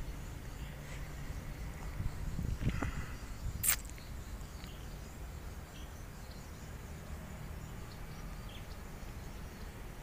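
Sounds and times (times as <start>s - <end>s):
steady low rumble: 0.0s - 6.7s.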